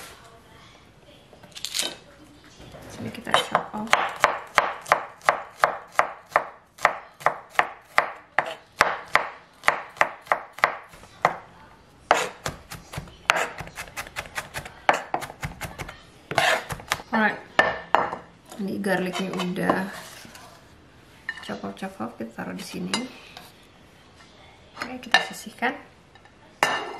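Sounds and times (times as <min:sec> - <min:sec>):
knife chopping on wooden board: 0:12.1 - 0:17.0.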